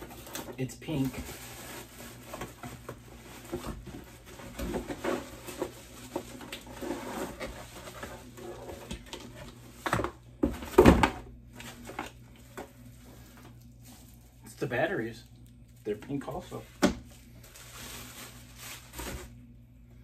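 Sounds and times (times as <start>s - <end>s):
bubble wrap crinkling: 0.0s - 9.9s, 11.5s - 14.8s, 15.5s - 19.4s
cardboard thumps: 9.8s - 11.3s.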